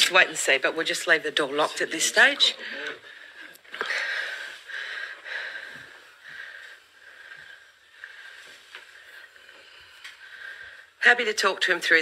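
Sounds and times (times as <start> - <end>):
breathing close to microphone: 2.6 - 11.0.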